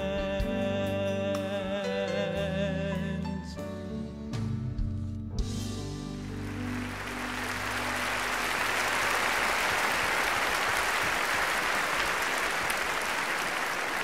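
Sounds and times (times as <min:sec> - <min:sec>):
held music chord: 0:00.4 - 0:09.4
audience applauding: 0:06.2 - 0:14.0.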